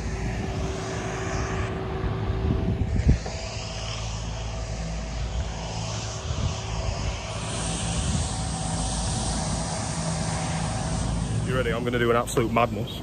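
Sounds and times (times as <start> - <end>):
road sweeper engine droning: 0.0 - 13.0.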